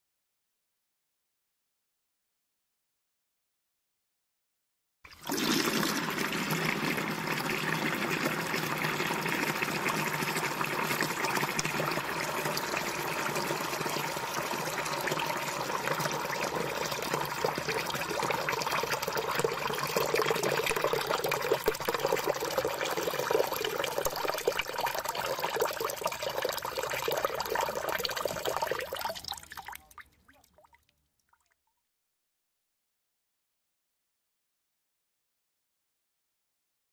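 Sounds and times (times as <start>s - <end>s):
water pouring into a bucket: 5.1s - 31.6s
water dripping: 8.1s - 31.6s.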